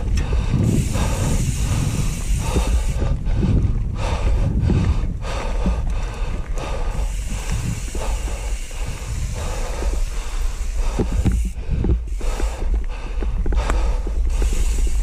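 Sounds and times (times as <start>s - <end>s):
bike rattling over bumps: 0.0s - 15.0s
tyres on dirt and stones: 0.0s - 15.0s
wind rumble on microphone: 0.0s - 15.0s.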